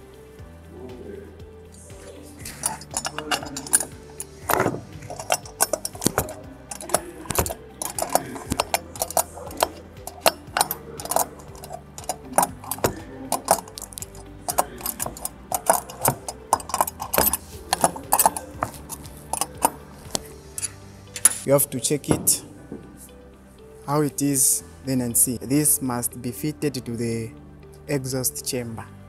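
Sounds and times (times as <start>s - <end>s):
spanner clinking on bolts: 2.4s - 21.5s.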